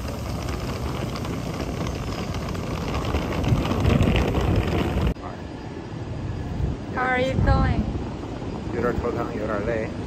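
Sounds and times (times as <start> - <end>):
suitcase wheels rolling on stone: 0.0 - 5.2.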